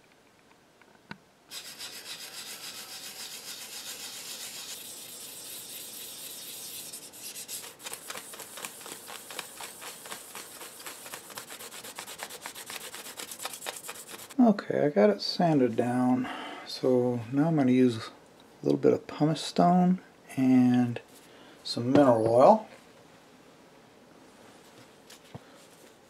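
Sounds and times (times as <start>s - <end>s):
sandpaper rubbing on panel: 1.5s - 14.4s.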